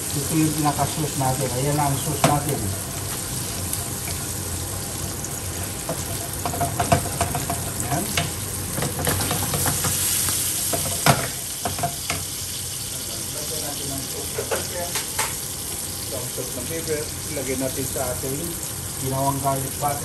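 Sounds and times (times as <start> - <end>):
fish sizzling in a pan: 0.0 - 20.0
spatula knocking on pan: 5.8 - 10.0, 10.7 - 12.2.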